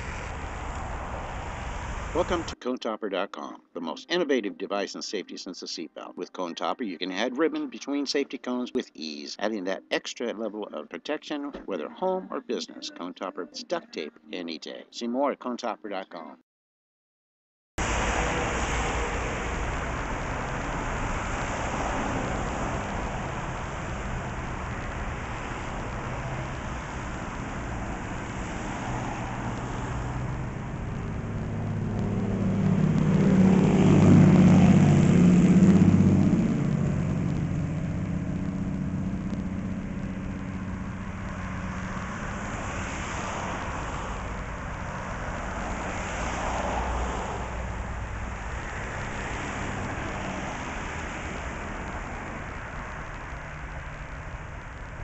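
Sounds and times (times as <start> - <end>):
outdoor traffic noise: 0.0 - 2.6, 17.8 - 55.0
vehicle passing close by: 0.0 - 2.6, 17.8 - 55.0.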